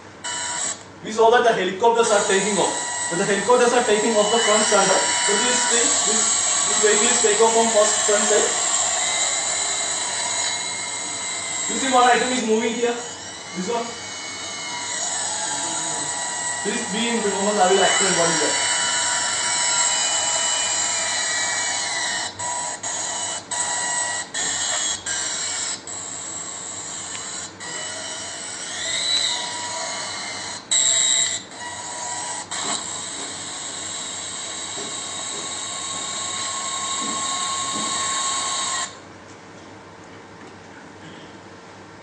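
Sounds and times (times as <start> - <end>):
high-pitched whirring hiss with tones: 0.2 - 39.0.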